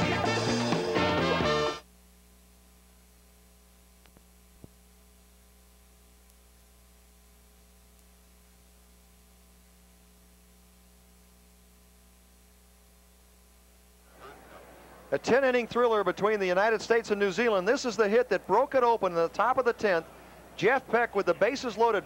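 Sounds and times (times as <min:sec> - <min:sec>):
low electrical hum: 0:00.2 - 0:22.0
small clicks: 0:04.0 - 0:04.8.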